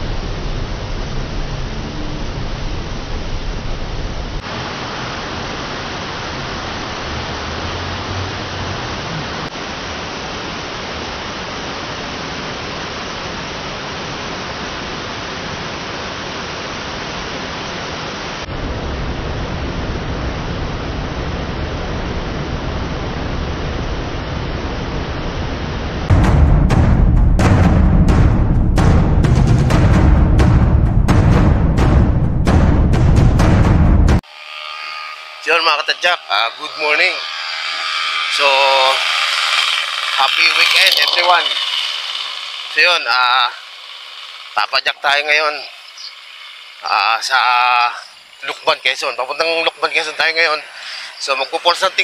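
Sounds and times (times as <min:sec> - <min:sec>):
waterfall rushing: 0:00.0 - 0:18.5, 0:39.0 - 0:52.0.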